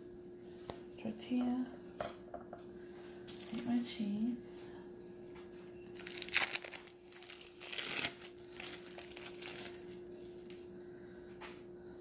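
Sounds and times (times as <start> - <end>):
plastic packaging crinkling: 5.8 - 10.6.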